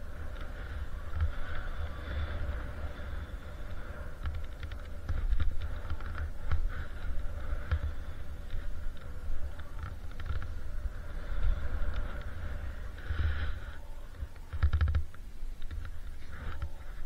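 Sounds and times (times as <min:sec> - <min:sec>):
wind buffeting microphone: 0:00.0 - 0:17.0
skis hissing through snow: 0:04.8 - 0:14.1.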